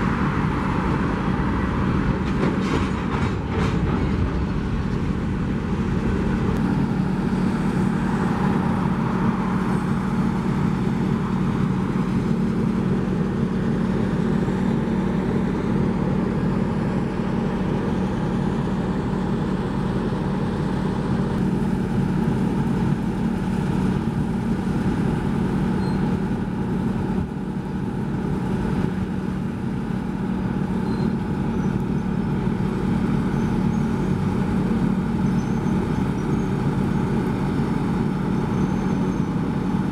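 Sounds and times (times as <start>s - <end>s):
train rolling noise: 0.0s - 25.6s
locomotive engine drone: 0.0s - 39.9s.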